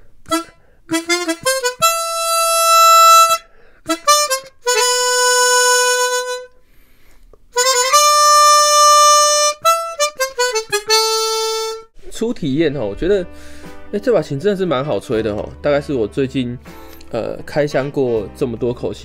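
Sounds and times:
harmonica playing: 0:00.2 - 0:06.6, 0:07.6 - 0:12.0.

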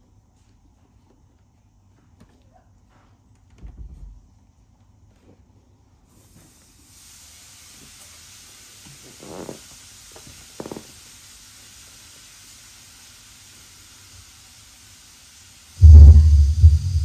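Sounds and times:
steady hiss: 0:05.6 - 0:17.0.

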